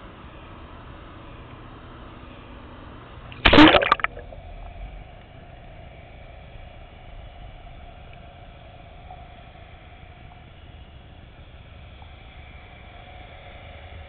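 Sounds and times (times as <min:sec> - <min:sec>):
faint steady hum: 0:00.0 - 0:14.0
loud splash: 0:03.4 - 0:04.4.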